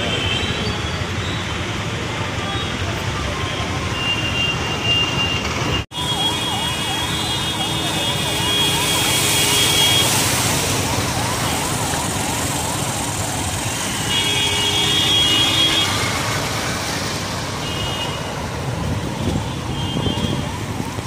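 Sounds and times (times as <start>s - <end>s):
vehicles driving through floodwater: 0.0s - 21.0s
car horns: 3.6s - 10.5s, 13.7s - 16.4s.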